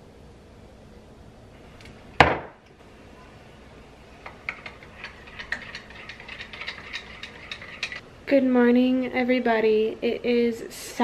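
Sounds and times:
spoon stirring in ceramic mug: 4.2s - 8.0s.

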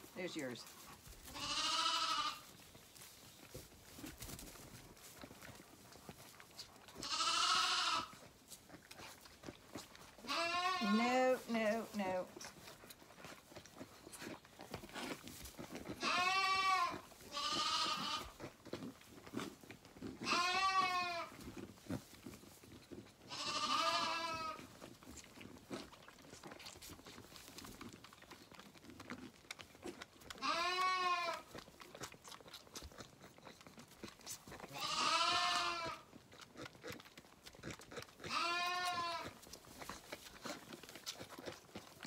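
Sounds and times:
lambs bleating: 1.3s - 2.5s, 7.0s - 8.3s, 10.2s - 12.2s, 15.8s - 18.5s, 20.1s - 21.5s, 23.2s - 24.7s, 30.4s - 31.6s, 34.6s - 36.1s, 38.2s - 39.4s.

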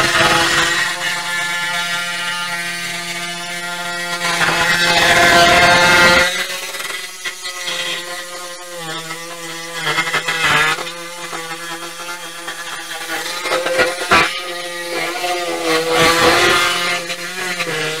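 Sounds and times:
power tool running: 0.0s - 18.0s.

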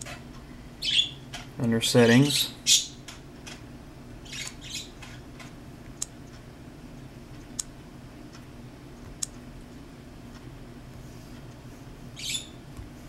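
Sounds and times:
faint room hum: 0.0s - 13.0s
bird squawking: 0.8s - 1.2s, 2.4s - 3.0s, 4.2s - 5.0s, 12.2s - 12.6s.

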